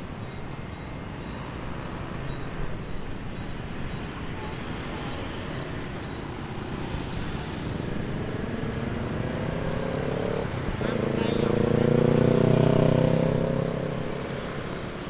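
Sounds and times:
city street traffic: 0:00.0 - 0:15.0
vehicle engine approaching: 0:07.2 - 0:15.0.

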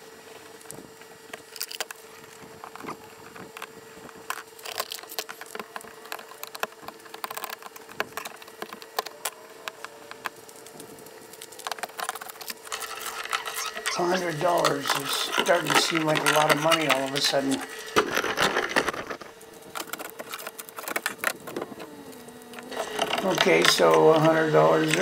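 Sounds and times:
screwdriver clicking and scraping: 0:11.6 - 0:21.5.

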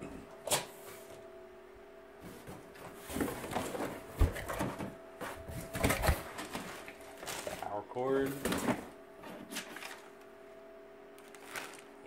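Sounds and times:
faint steady hum: 0:00.0 - 0:12.0
cardboard scraping and rustling: 0:02.2 - 0:10.1, 0:11.2 - 0:11.9.

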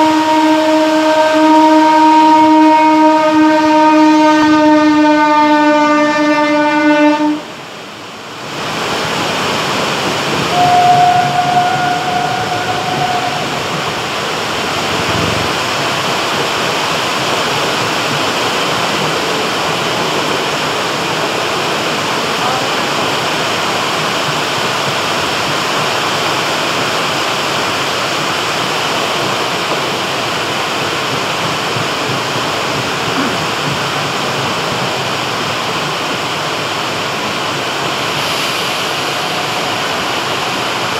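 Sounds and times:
train horn: 0:00.0 - 0:07.6, 0:10.5 - 0:13.8
heavy rain: 0:00.0 - 0:40.9
passenger coaches rolling past: 0:00.0 - 0:40.9.

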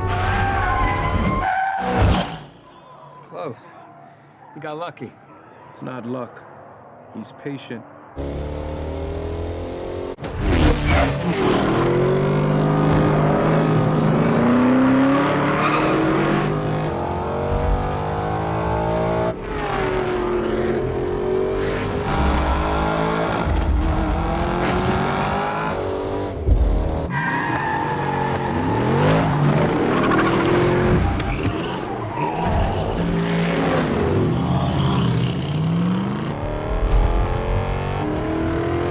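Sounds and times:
car engines revving: 0:08.0 - 0:38.9.

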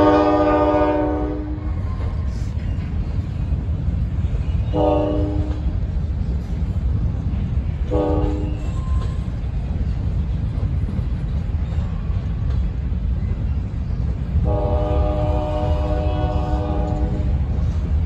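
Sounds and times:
locomotive air horn: 0:00.0 - 0:01.6, 0:04.7 - 0:05.7, 0:07.9 - 0:08.6, 0:14.4 - 0:17.4
train cars rumbling past: 0:00.0 - 0:18.0.

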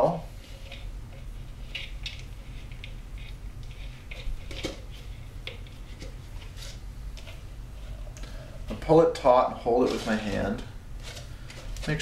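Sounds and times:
plastic bottle crinkling: 0:09.8 - 0:12.0.

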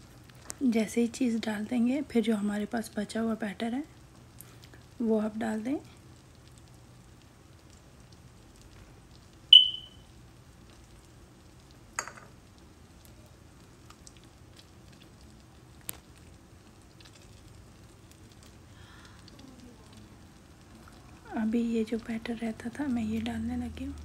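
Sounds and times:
batter sizzling in frying pan: 0:00.0 - 0:24.0
bright ringing clink: 0:09.5 - 0:10.0.

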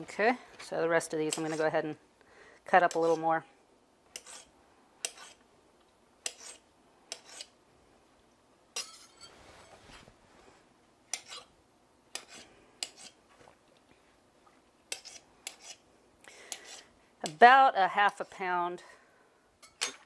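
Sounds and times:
knife scraping: 0:01.3 - 0:01.8, 0:02.8 - 0:03.3, 0:04.1 - 0:05.4, 0:06.2 - 0:07.6, 0:11.1 - 0:13.5, 0:14.9 - 0:17.4.

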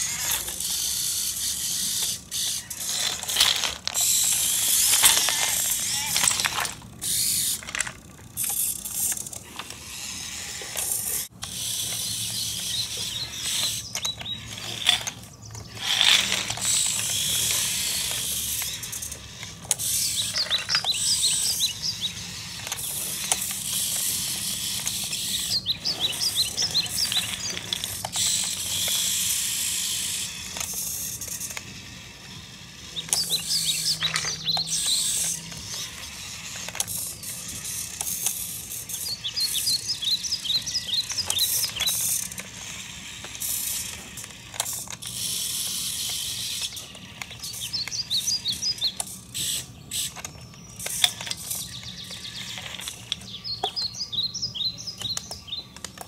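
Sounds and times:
toy electric motors whirring: 0:00.0 - 0:56.0
plastic clicks and rattles: 0:02.8 - 0:09.8, 0:33.0 - 0:45.4, 0:46.0 - 0:54.1, 0:54.8 - 0:56.0.

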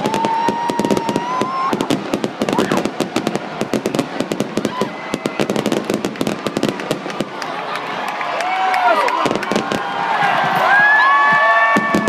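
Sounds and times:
fireworks crackling bangs: 0:00.0 - 0:08.0, 0:09.1 - 0:12.0
firework whistle rising: 0:10.4 - 0:12.0.

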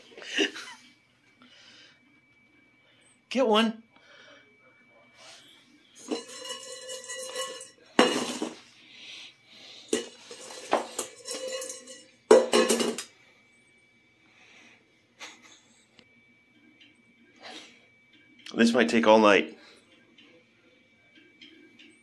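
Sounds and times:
metal bowl clanking and ringing: 0:06.0 - 0:08.6, 0:09.9 - 0:13.1.

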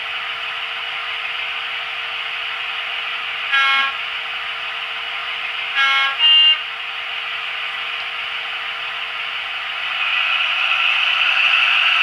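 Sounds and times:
diesel horn from small speaker: 0:03.5 - 0:04.0, 0:05.7 - 0:06.7.

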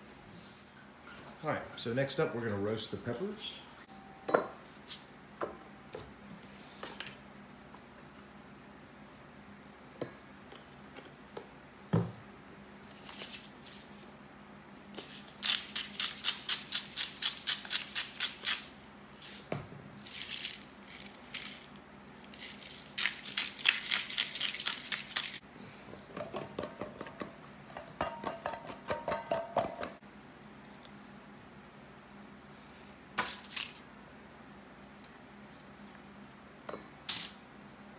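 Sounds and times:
peppers tossed in metal bowl: 0:14.9 - 0:25.4.

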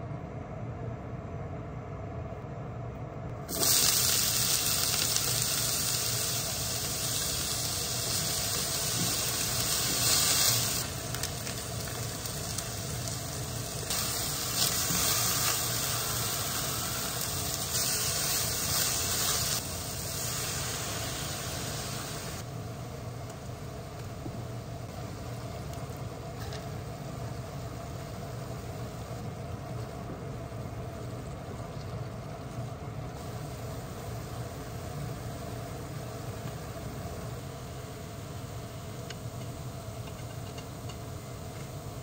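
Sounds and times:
vegetables sizzling in hot oil: 0:03.5 - 0:22.5.

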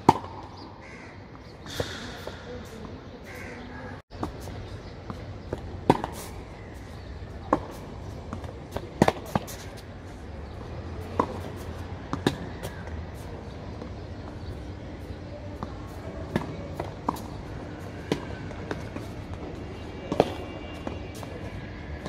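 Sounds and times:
racquets striking tennis ball: 0:00.0 - 0:00.7, 0:04.2 - 0:06.4, 0:07.0 - 0:09.9, 0:10.9 - 0:13.6, 0:15.6 - 0:21.3
tennis ball bouncing: 0:00.0 - 0:00.7, 0:04.2 - 0:06.3, 0:07.0 - 0:09.8, 0:10.9 - 0:14.5, 0:15.6 - 0:21.3.

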